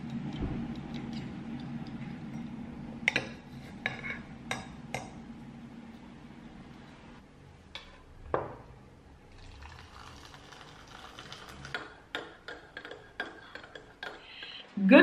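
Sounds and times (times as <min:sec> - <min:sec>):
water poured into mug: 0:09.3 - 0:11.8.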